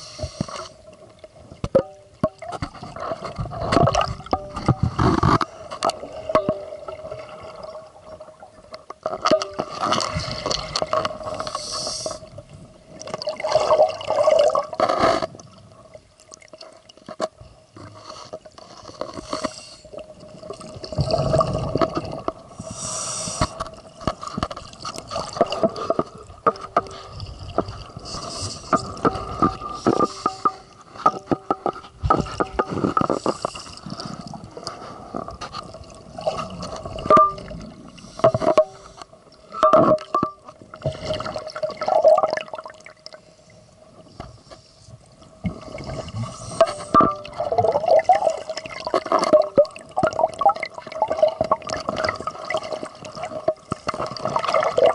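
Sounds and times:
scuba regulator breathing: 0:00.0 - 0:00.8, 0:11.2 - 0:12.4, 0:17.9 - 0:20.0, 0:22.5 - 0:23.7, 0:26.9 - 0:31.0, 0:32.7 - 0:35.2, 0:37.8 - 0:39.2, 0:45.8 - 0:47.0
exhaled bubbles rushing: 0:20.5 - 0:22.4, 0:45.5 - 0:53.5.

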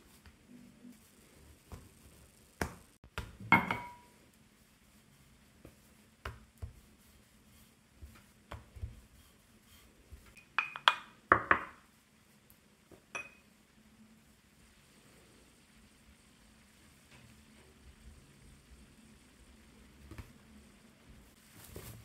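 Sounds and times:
pastry brush clinking on ceramic: 0:03.5 - 0:04.2, 0:10.2 - 0:11.8, 0:13.1 - 0:13.5.

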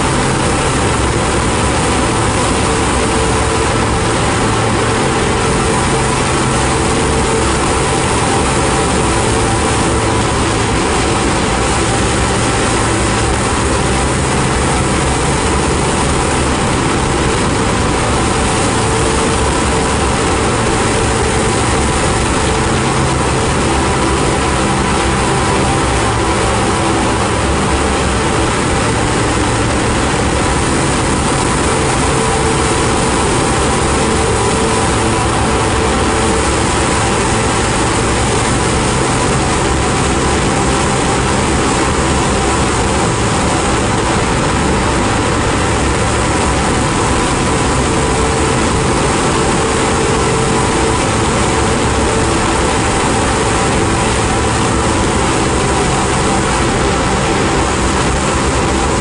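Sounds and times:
ambient drone music: 0:00.0 - 0:59.0.

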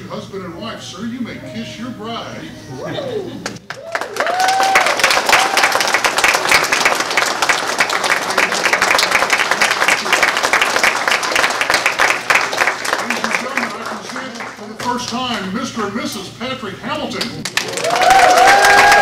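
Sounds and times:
whooping cheers: 0:03.0 - 0:06.1, 0:17.6 - 0:19.0
crowd clapping: 0:03.4 - 0:15.5, 0:17.2 - 0:19.0.

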